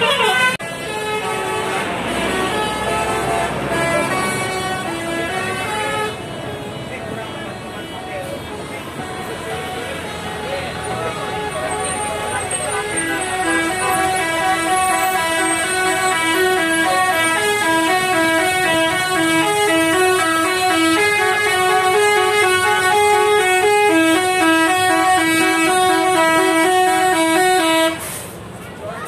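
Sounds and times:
bus horn playing a melody: 0.0 - 28.4.

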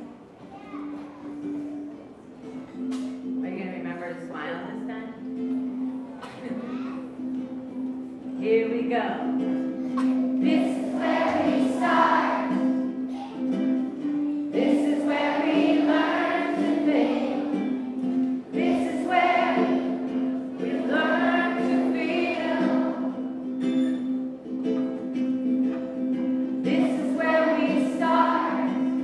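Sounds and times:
ukulele: 0.0 - 29.0
person singing: 20.6 - 23.0, 26.6 - 29.0.

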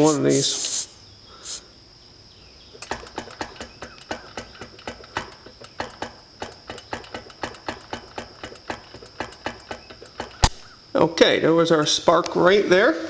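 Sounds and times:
faint high whine: 0.0 - 7.8
engine kickstarter clicks: 2.8 - 10.6.

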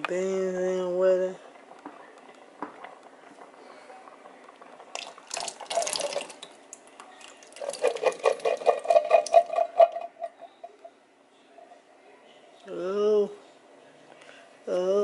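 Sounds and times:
liquid splashing into pot: 1.6 - 10.4
beans plopping: 1.8 - 9.8.

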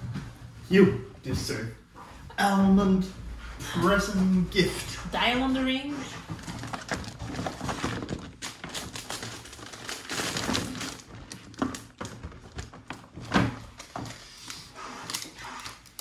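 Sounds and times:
wrapping paper crinkling: 6.3 - 16.0.

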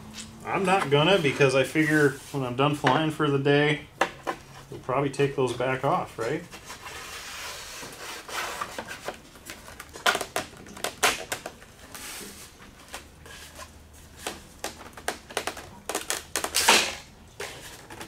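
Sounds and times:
foam rubbing: 6.6 - 9.1.

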